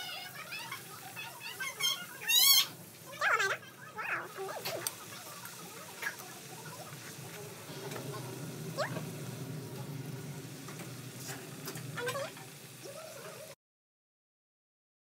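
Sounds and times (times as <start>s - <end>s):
hot oil sizzling: 0.0s - 13.6s
low steady hum: 6.5s - 13.0s
high rising squeaks: 7.2s - 13.4s.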